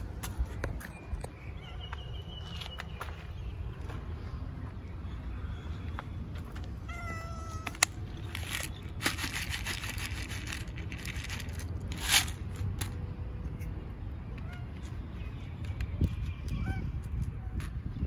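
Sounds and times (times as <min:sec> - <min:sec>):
cat meowing: 0:06.9 - 0:07.8
kibble rattling out of plastic bottle: 0:08.2 - 0:13.0.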